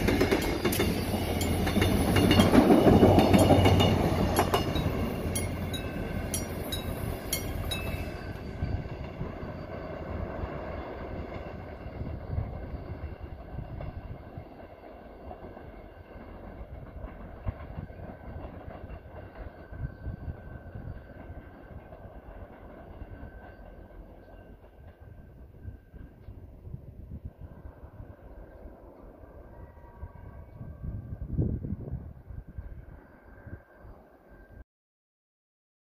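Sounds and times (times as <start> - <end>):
train wheels clicking over rail joints: 0.0 - 9.7, 13.4 - 26.6
train rumble: 0.0 - 34.6.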